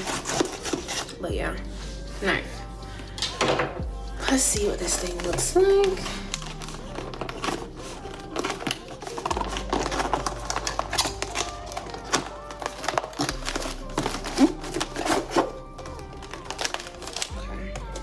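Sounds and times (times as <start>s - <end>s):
knife cutting cardboard box: 0.0s - 1.2s
background music with bass: 0.0s - 18.0s.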